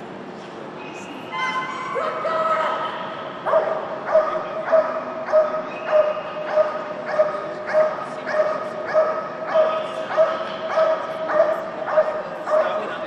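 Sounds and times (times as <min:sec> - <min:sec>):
dog barking rhythmically: 0:03.5 - 0:12.9.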